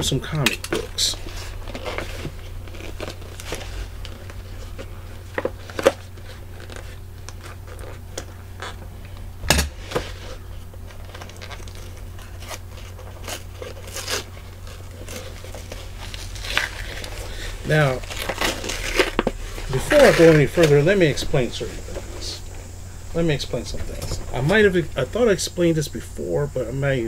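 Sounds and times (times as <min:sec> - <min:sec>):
steady low hum: 0:00.0 - 0:27.0
package crinkles and rustles: 0:00.7 - 0:09.2, 0:09.8 - 0:22.5.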